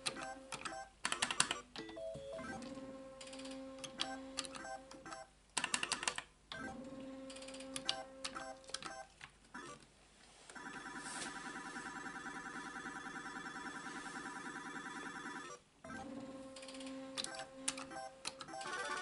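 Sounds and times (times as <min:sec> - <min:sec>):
slot machine electronic tones: 0:17.2 - 0:19.0.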